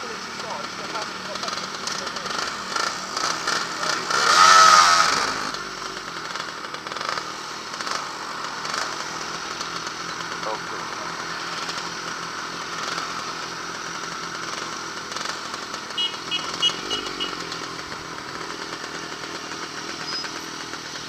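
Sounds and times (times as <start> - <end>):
two-stroke motorcycle engine running: 0.0 - 21.0.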